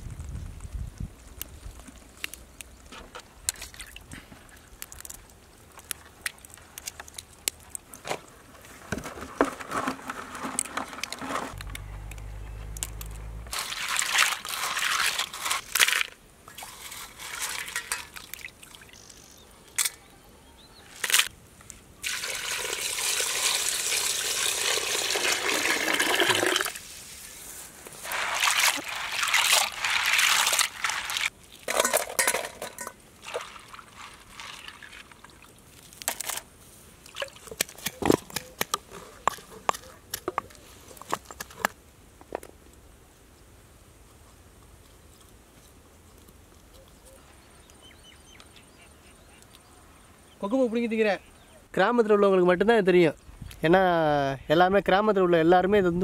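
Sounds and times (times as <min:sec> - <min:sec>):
water splashing in a bowl: 0:22.0 - 0:26.8, 0:28.0 - 0:32.0, 0:32.7 - 0:35.8.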